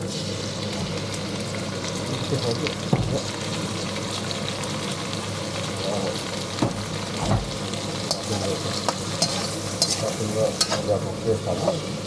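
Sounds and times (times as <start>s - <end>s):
stir-fry sizzling in a pan: 0.0s - 12.0s
spatula scraping and knocking pan: 8.9s - 10.9s.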